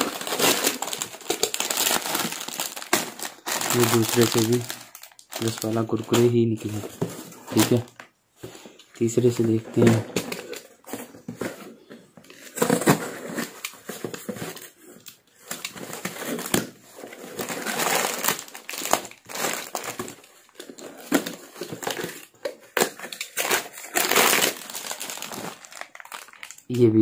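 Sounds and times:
crinkly plastic packet: 0:00.0 - 0:08.1, 0:12.4 - 0:27.0
cardboard parcel rustling and scraping: 0:00.0 - 0:26.4.

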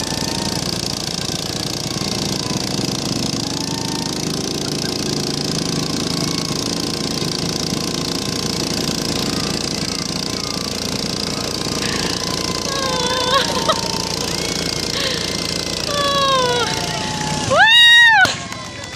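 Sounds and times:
tractor engine idling: 0:00.0 - 0:18.9.

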